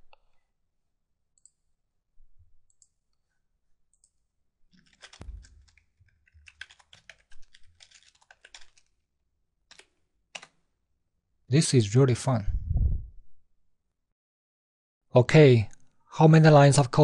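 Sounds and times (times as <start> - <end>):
soft clicks: 1.4 - 1.6
rapid typing on a keyboard: 4.8 - 9.0, 9.7 - 10.6.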